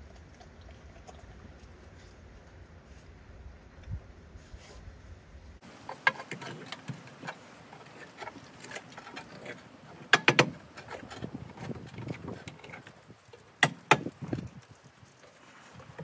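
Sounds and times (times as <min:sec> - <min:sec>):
rustling handling noise: 0:05.6 - 0:16.0.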